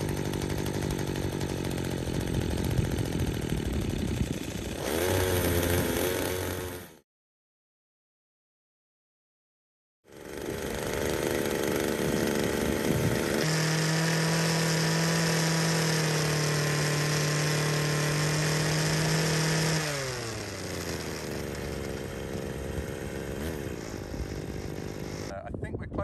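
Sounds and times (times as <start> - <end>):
two-stroke hedge cutter engine: 0.0 - 7.0, 10.1 - 25.3.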